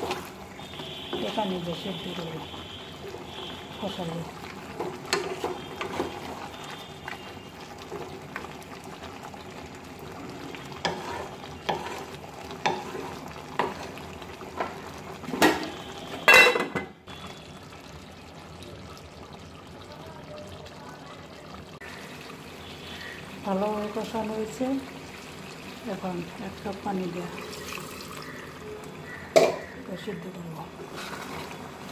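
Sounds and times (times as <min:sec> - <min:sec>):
meat sizzling in a pot: 0:00.0 - 0:31.9
spatula scraping a pan: 0:04.8 - 0:06.4, 0:10.8 - 0:14.0, 0:30.8 - 0:31.9.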